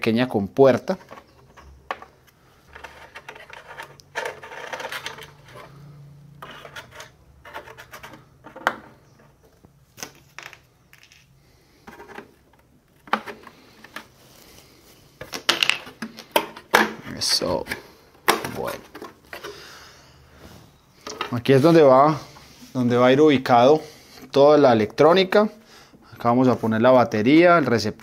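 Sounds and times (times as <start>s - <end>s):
hands clicking and scraping plastic: 0.9s - 5.7s, 11.8s - 14.2s, 15.2s - 19.6s.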